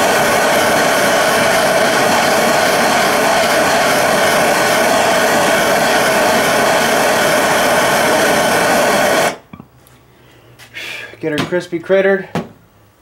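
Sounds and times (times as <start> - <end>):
gas torch burning: 0.0 - 9.5.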